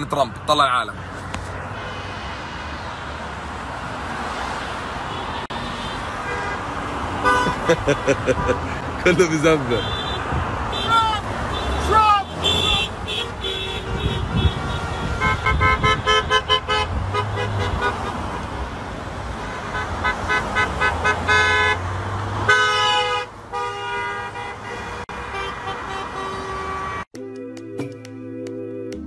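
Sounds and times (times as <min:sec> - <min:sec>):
moving car hum: 0:00.0 - 0:27.1
car horns honking: 0:05.0 - 0:18.6, 0:19.3 - 0:27.1.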